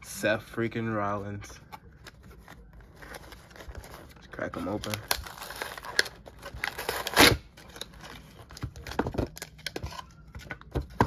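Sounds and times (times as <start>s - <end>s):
plastic crinkling: 2.0s - 10.4s
packaging being torn open: 4.6s - 9.8s.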